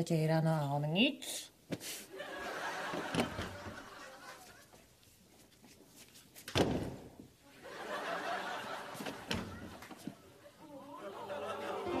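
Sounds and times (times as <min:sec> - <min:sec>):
door banging: 0:02.9 - 0:03.8, 0:09.1 - 0:09.8.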